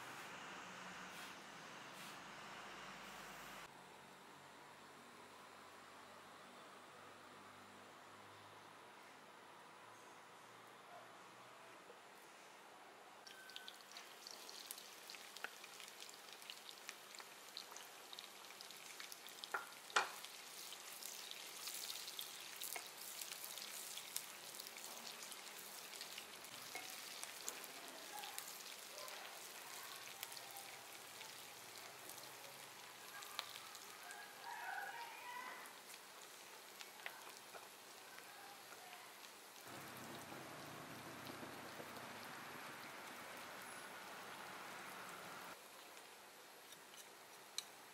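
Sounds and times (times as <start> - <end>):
onions sizzling in hot oil: 13.3 - 47.9.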